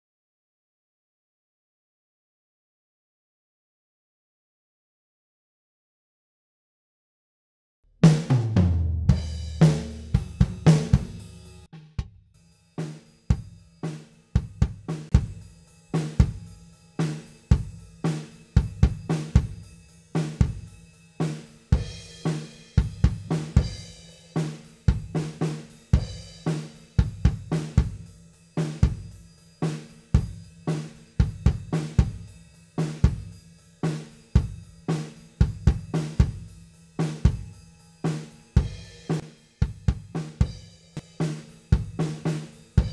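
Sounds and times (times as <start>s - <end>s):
drum kit groove: 8.0s - 12.2s, 12.8s - 42.9s
ringing drum hit: 8.3s - 11.7s, 12.8s - 42.9s.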